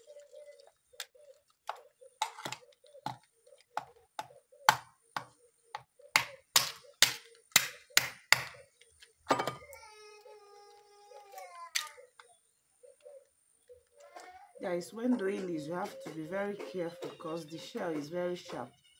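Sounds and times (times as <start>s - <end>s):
hammer cracking snail shells: 3.8s - 8.6s.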